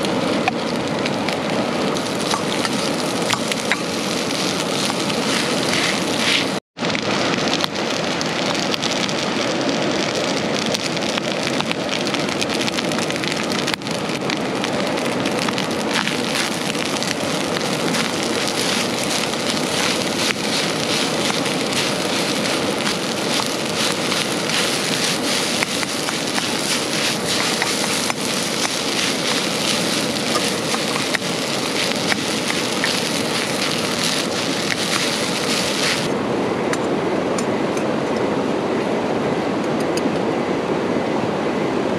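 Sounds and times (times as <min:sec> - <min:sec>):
heavy rain falling: 0:00.0 - 0:36.2.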